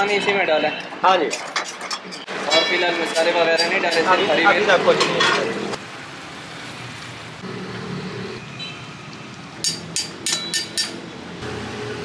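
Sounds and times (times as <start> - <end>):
metal tongs clacking: 1.3 - 4.2, 9.6 - 11.0.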